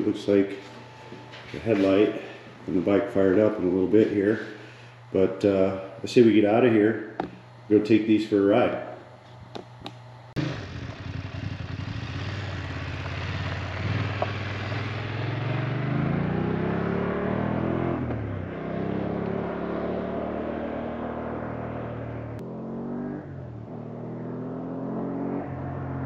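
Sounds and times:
motorcycle engine accelerating: 9.4s - 26.0s.

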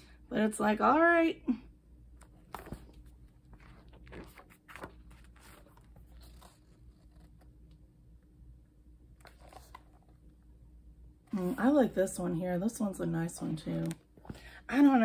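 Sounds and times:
paper pages rustling: 2.2s - 7.8s, 9.2s - 10.2s, 13.6s - 14.4s.

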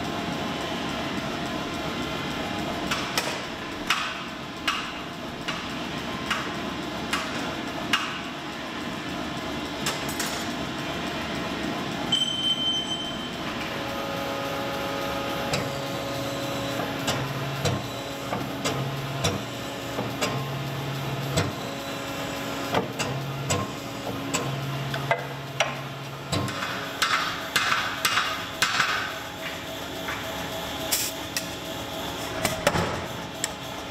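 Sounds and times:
steady low hum: 13.0s - 33.9s.

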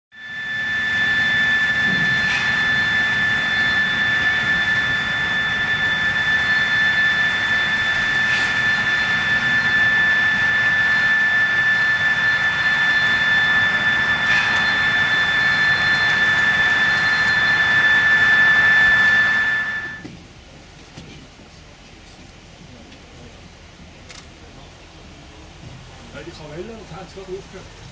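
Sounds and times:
high steam whistle: 0.1s - 20.1s.

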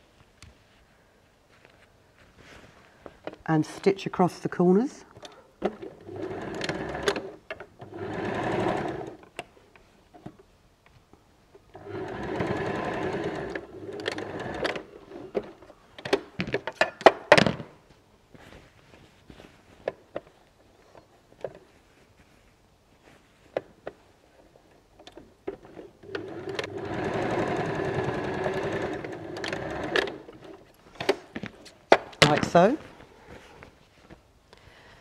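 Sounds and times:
sewing machine stitching: 5.7s - 9.2s, 11.7s - 14.9s, 25.6s - 30.6s
fabric handling: 18.0s - 24.2s.

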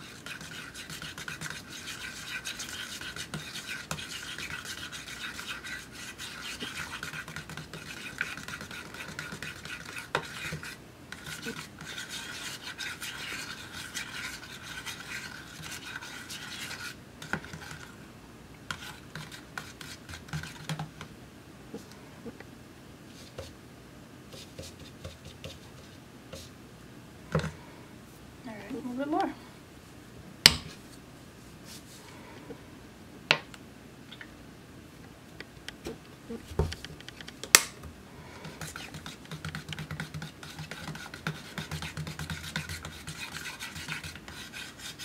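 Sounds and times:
palette knife scraping paint in cup: 0.0s - 17.9s, 38.5s - 45.0s.

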